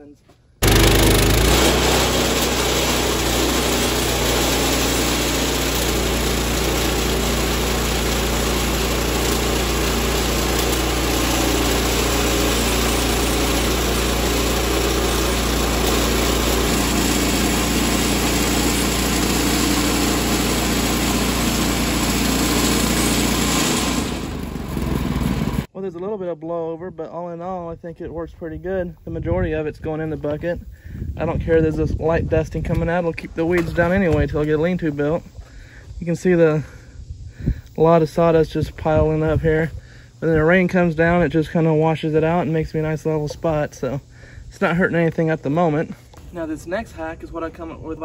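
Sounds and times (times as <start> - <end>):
band sawmill cutting timber: 0.6 - 25.7.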